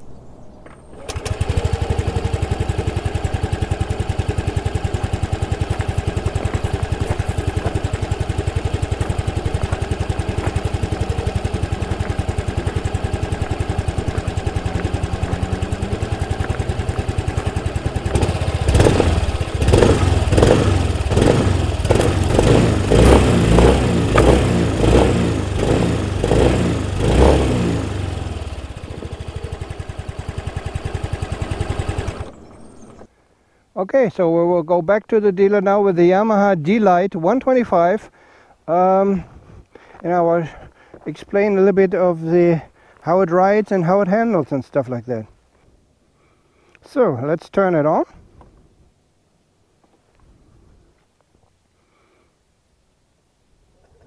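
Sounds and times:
scooter engine idling and revving: 0:00.9 - 0:33.1.

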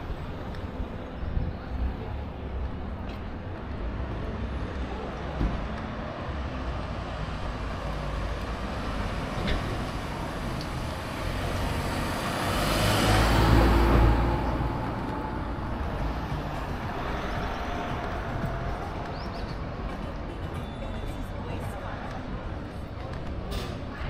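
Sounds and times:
background traffic noise: 0:00.0 - 0:24.0
vehicle passing close by: 0:10.7 - 0:19.2.

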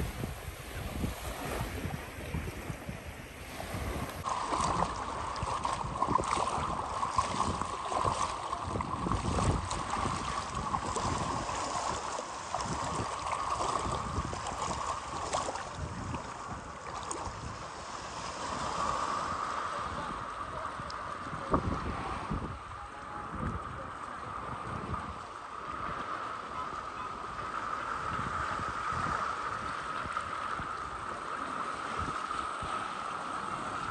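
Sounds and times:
sea water sloshing and lapping: 0:00.0 - 0:33.9
wind on microphone: 0:00.0 - 0:33.9
small splashes: 0:03.8 - 0:17.5.

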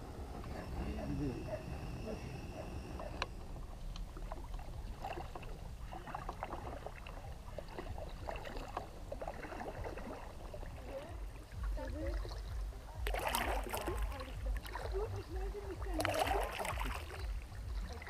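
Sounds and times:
low rumble: 0:00.0 - 0:18.0
paddles splashing in water: 0:00.0 - 0:18.0
splashy rush: 0:13.0 - 0:15.1.

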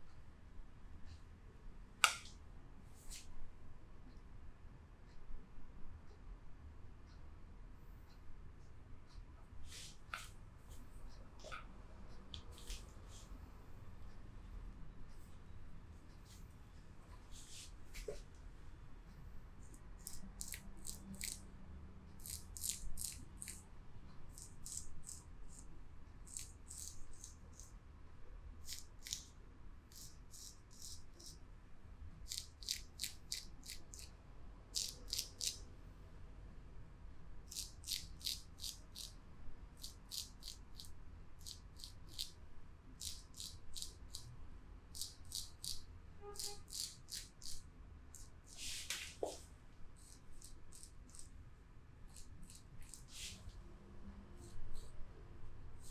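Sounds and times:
faint low hum: 0:00.0 - 0:55.9
rustling scrapes: 0:48.5 - 0:49.4, 0:52.8 - 0:53.5.

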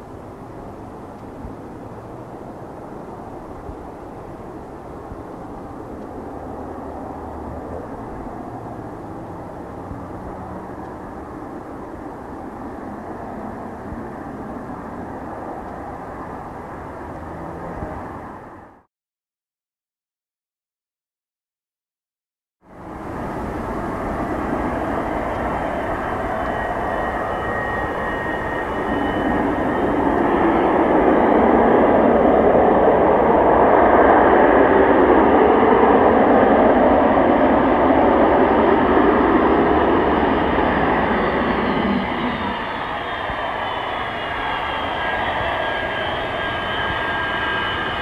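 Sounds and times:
jet engine noise: 0:00.0 - 0:18.9, 0:22.7 - 0:48.0
thin high whine: 0:22.8 - 0:48.0.

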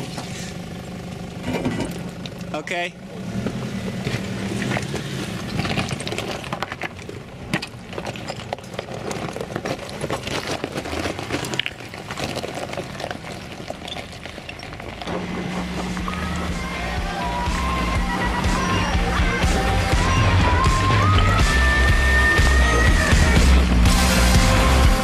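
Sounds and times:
engine low hum: 0:00.0 - 0:25.0
rock crunching under tyres: 0:03.2 - 0:24.7
music: 0:15.7 - 0:25.0.

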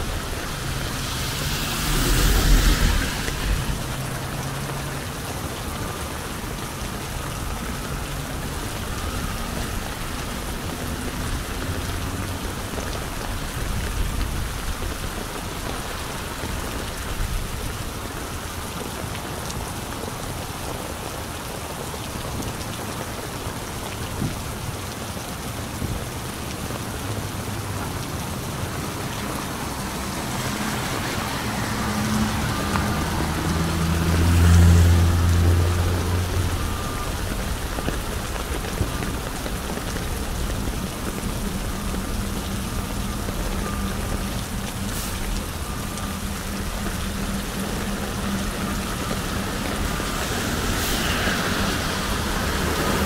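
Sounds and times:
car tyres swishing on wet street: 0:00.0 - 0:53.0
rain pattering on an umbrella: 0:00.0 - 0:53.0.

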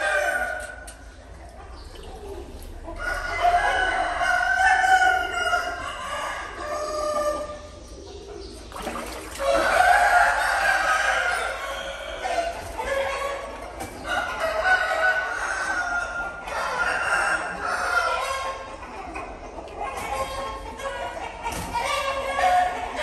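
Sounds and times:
rooster crowing: 0:03.0 - 0:07.6.

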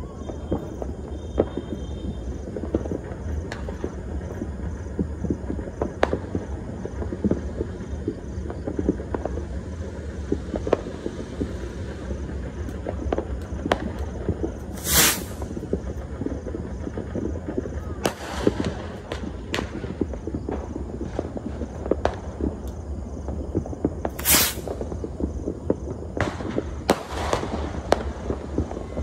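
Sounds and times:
distant fireworks popping: 0:00.0 - 0:29.0
loud firework bang: 0:13.0 - 0:22.3, 0:23.8 - 0:29.0.

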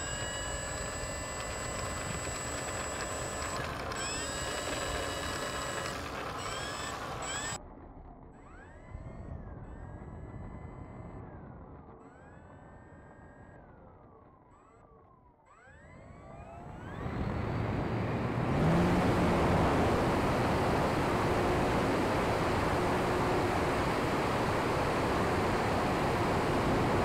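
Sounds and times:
electric motor and propeller whine: 0:00.0 - 0:07.6, 0:15.4 - 0:27.0.

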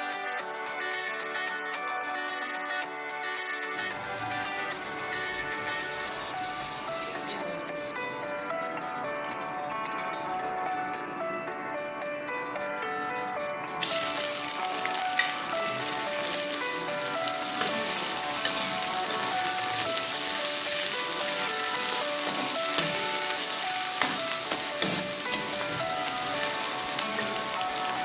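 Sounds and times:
soft background music: 0:00.0 - 0:28.0
onions sizzling in oil: 0:03.8 - 0:07.3, 0:13.8 - 0:28.0.

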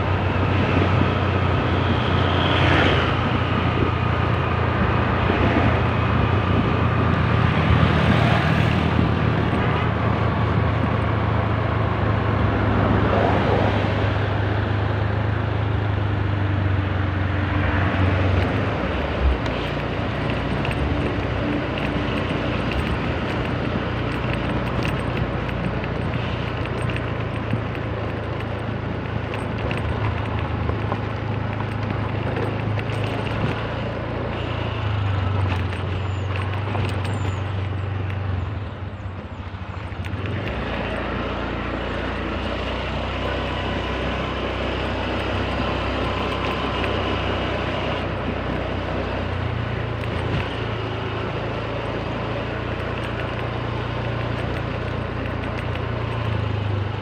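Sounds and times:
wind and road noise: 0:00.0 - 0:57.0
scooter engine running: 0:17.5 - 0:57.0.

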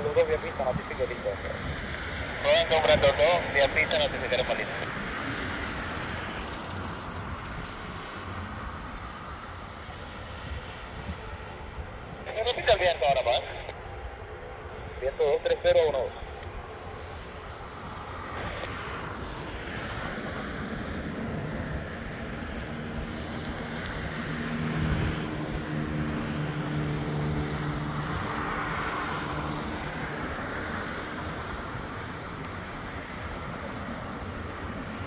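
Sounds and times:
turboprop engines droning: 0:00.0 - 0:35.0.

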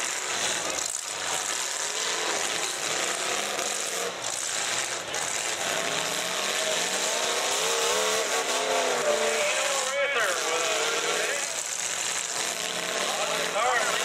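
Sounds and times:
car engines revving: 0:00.0 - 0:14.0
noisy din: 0:05.2 - 0:14.0.

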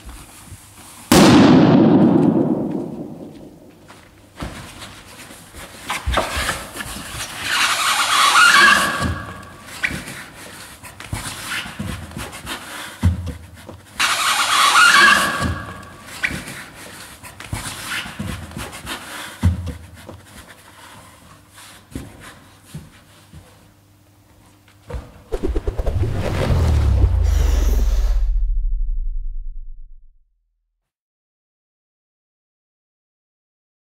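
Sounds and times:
balloon squeaking and rubbing: 0:07.3 - 0:10.0, 0:14.0 - 0:16.5.

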